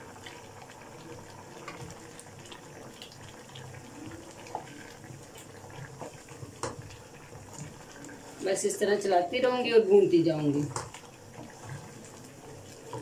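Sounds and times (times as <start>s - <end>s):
food sizzling and bubbling: 0.0s - 13.0s
wooden spatula stirring: 1.6s - 8.7s, 10.5s - 13.0s.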